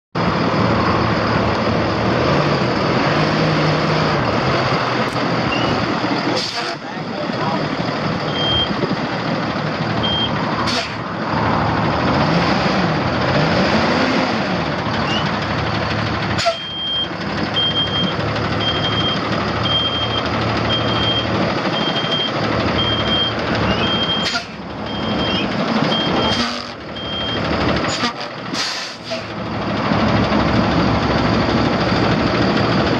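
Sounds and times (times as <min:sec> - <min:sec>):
noisy rumble: 0:00.2 - 0:32.9
vehicle backup alarm beeping: 0:05.4 - 0:05.8, 0:07.4 - 0:08.9, 0:10.0 - 0:10.4, 0:16.4 - 0:28.0.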